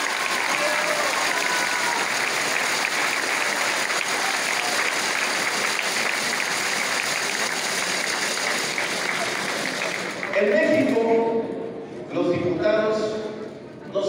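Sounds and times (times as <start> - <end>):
audience clapping: 0.0 - 11.0.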